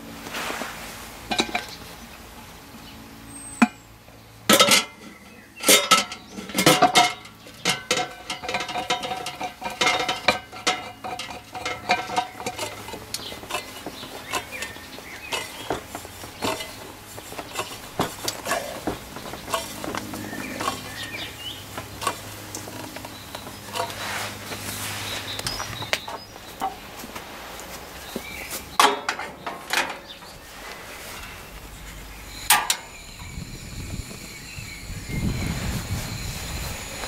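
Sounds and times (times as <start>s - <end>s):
metal pot and lid clanking: 1.3s - 1.8s, 4.5s - 24.0s, 28.8s - 30.2s, 32.5s - 33.0s.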